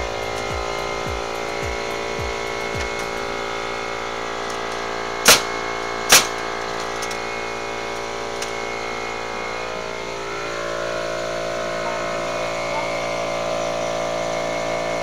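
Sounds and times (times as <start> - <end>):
machine hum: 0.0 - 15.0
sharp loud impacts: 5.2 - 6.6.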